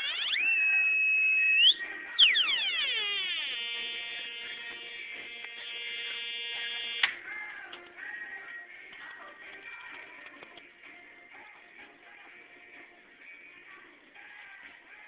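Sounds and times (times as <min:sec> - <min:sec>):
synthesizer siren tone sweeping: 0:00.0 - 0:07.1
buzzy synthesizer tone: 0:00.0 - 0:07.2.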